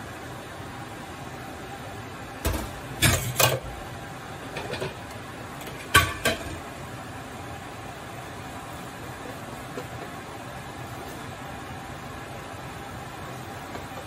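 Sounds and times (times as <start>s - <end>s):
pan and utensils clattering: 2.5s - 3.8s, 4.5s - 6.7s.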